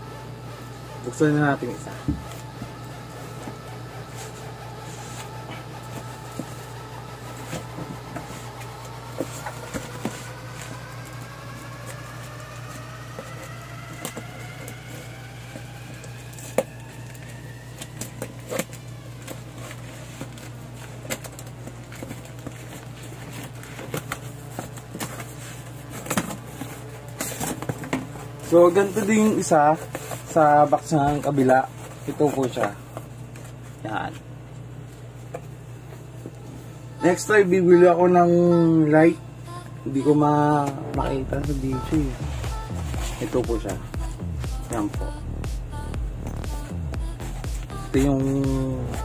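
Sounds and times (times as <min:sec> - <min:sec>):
faint rising tone: 0:00.0 - 0:20.5, 0:40.8 - 0:47.9
steady low hum: 0:00.0 - 0:49.0.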